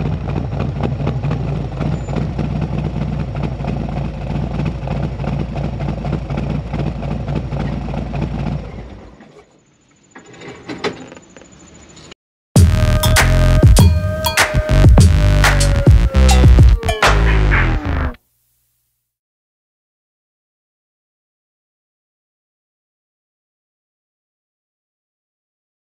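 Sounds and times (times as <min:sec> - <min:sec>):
motorcycle engine idling: 0:00.0 - 0:09.2.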